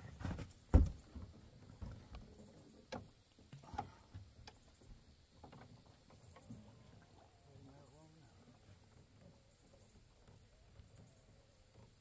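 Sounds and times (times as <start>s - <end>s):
thumps and knocks on metal boat: 0.0s - 2.2s.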